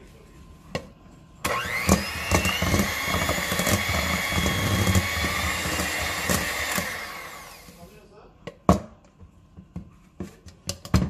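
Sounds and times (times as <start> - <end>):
hand mixer motor whining: 1.4 - 7.8.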